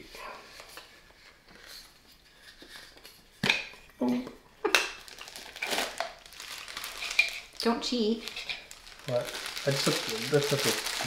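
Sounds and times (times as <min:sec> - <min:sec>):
plastic packaging handled: 0:04.8 - 0:11.0.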